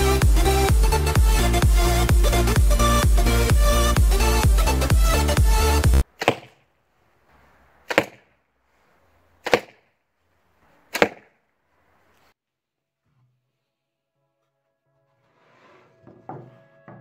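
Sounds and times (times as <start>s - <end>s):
arrows striking target: 6.1s - 6.6s, 7.8s - 8.3s, 9.4s - 9.8s, 10.9s - 11.3s.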